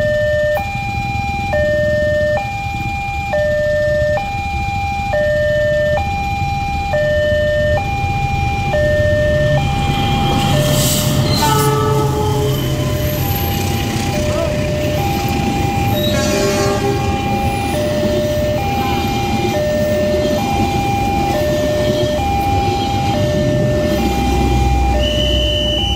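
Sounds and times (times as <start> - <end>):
diesel locomotive rumble: 0.0 - 25.9
train horn blast: 10.0 - 13.4, 16.0 - 17.5.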